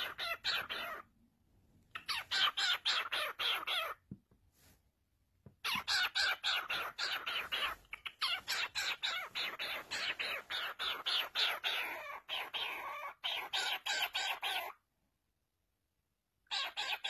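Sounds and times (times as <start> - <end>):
cockatiel raspy calls: 0.0 - 1.1, 1.9 - 4.0, 5.6 - 14.8, 16.5 - 17.0.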